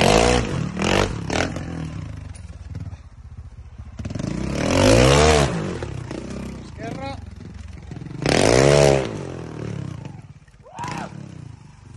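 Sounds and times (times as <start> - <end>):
motorcycle engine revving: 0.0 - 11.9.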